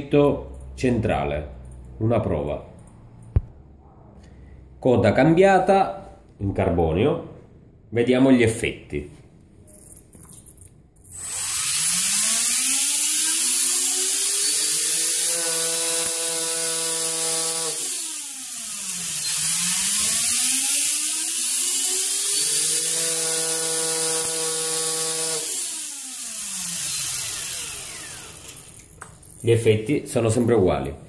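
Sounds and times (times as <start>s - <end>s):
rc helicopter rotor whine: 11.1s - 15.4s, 16.8s - 29.4s.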